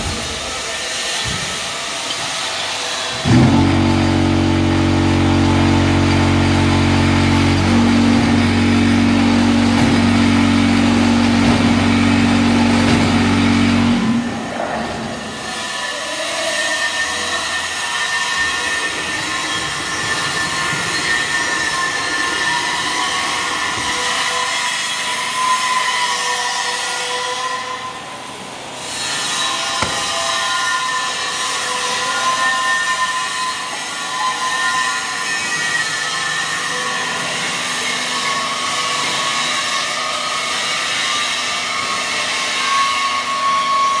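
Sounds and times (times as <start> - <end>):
vibrating machine metallic rattle: 3.2 - 14.5
high whine: 3.2 - 15.1.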